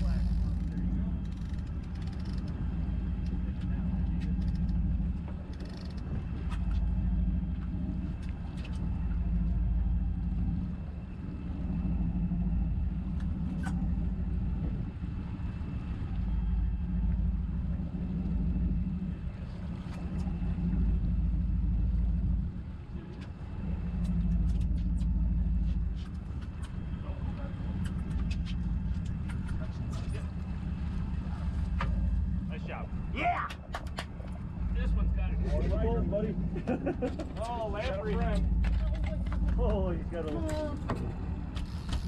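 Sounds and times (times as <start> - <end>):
faint clicks: 0.0 - 6.9
boat engine droning: 0.0 - 42.0.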